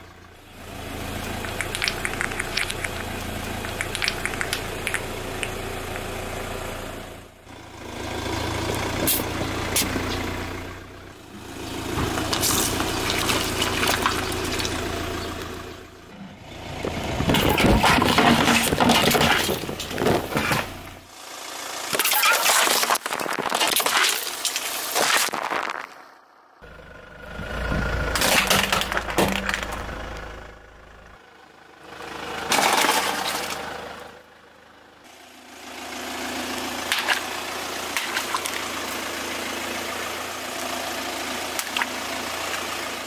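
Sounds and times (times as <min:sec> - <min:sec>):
car engine idling: 0:00.0 - 0:22.0, 0:26.0 - 0:43.0
tyre crushing small objects: 0:17.2 - 0:20.7.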